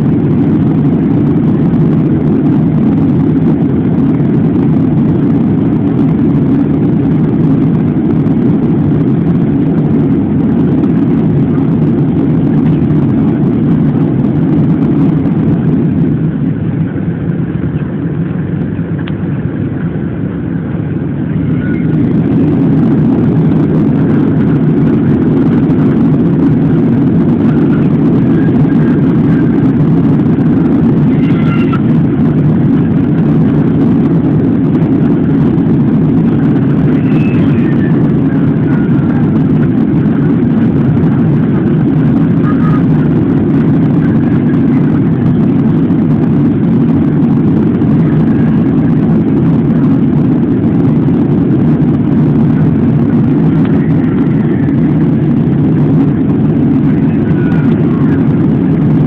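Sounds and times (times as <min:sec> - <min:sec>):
airliner cabin roar: 0:00.0 - 0:59.0.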